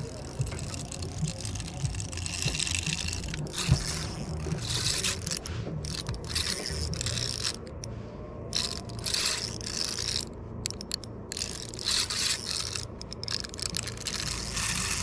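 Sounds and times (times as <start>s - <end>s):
fishing reel gears whirring: 0.0s - 15.0s.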